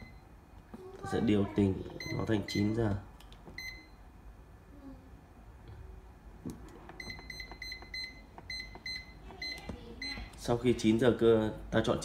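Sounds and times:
control panel beeping: 0:00.0 - 0:00.2, 0:01.9 - 0:02.8, 0:03.5 - 0:04.0, 0:06.9 - 0:10.4.

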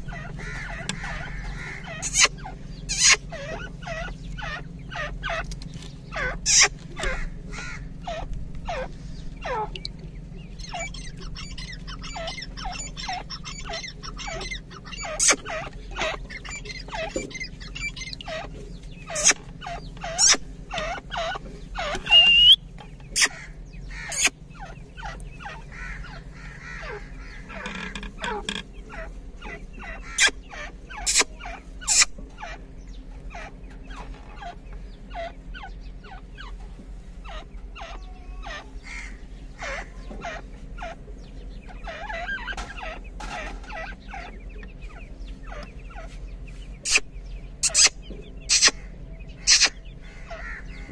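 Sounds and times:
loud sharp bird notes: 0:00.0 - 0:36.5, 0:37.2 - 0:50.9
chicks peeping: 0:00.0 - 0:50.9.

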